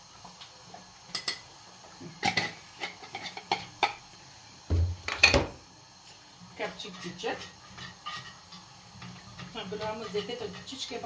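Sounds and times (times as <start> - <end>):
spoon scraping frying pan: 1.1 - 4.0, 6.6 - 11.0.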